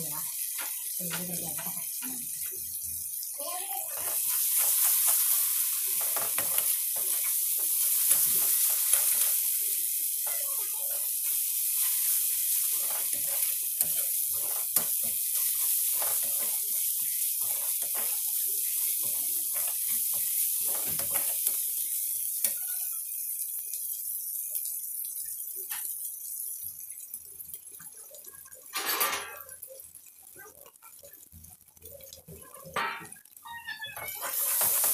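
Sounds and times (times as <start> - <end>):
spice paste sizzling in oil: 0.0 - 28.8, 29.5 - 34.9
metal spoon scraping a pan: 3.9 - 21.7, 33.0 - 34.9.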